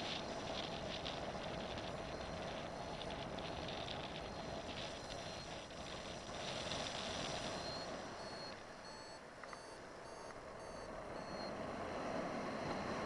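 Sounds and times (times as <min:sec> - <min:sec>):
wind rushing over microphone: 0:00.0 - 0:09.1
variometer short high beeps: 0:07.5 - 0:11.5.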